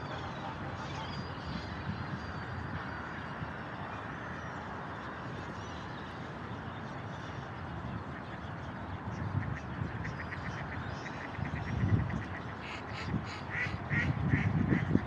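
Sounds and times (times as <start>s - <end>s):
steady background noise: 0.0s - 15.0s
ducks quacking: 9.4s - 15.0s.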